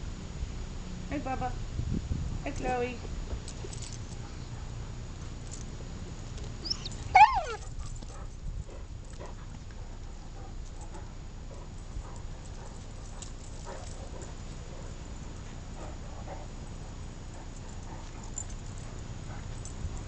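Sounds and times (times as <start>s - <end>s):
dog yelping: 6.6s - 7.7s.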